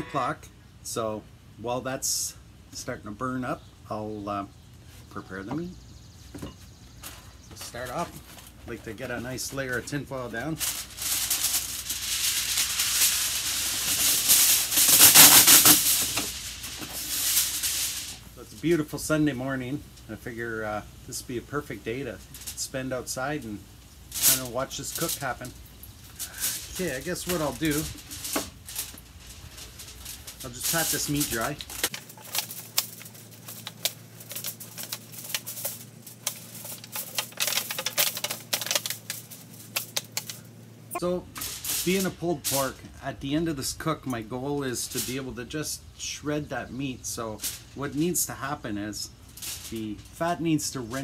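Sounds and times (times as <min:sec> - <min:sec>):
aluminium foil crinkling: 0:07.0 - 0:18.9, 0:21.1 - 0:40.6, 0:41.4 - 0:42.8, 0:43.6 - 0:45.6, 0:47.0 - 0:51.0.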